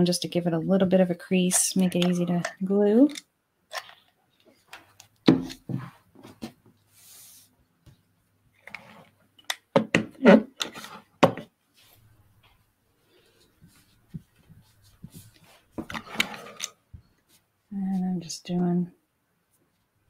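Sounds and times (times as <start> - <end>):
cloth rubbed by hand: 6.9 - 7.5.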